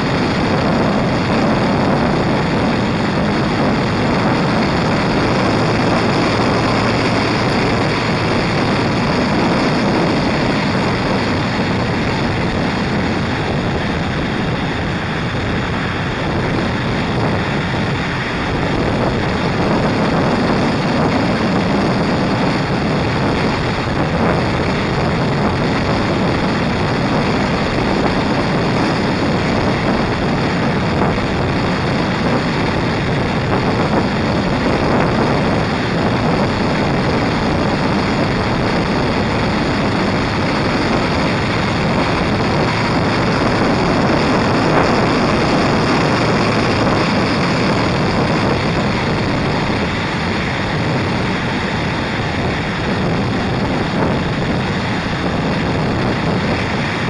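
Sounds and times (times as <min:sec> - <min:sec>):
motorcycle engine: 0:00.0 - 0:57.0
wind rushing over microphone: 0:00.0 - 0:57.0.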